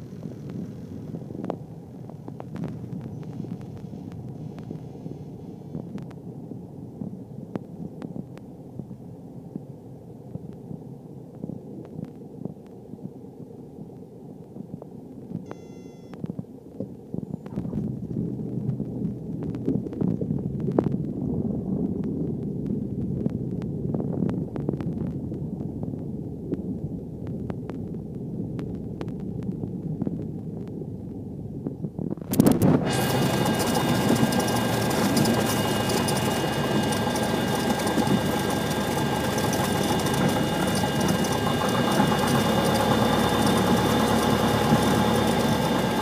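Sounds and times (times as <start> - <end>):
aircraft rolling along runway: 0.0 - 9.6, 16.3 - 46.0
small plane engine and airflow rumble: 0.0 - 46.0
brief high tone: 15.5 - 16.2
scattered clicks: 32.3 - 44.2.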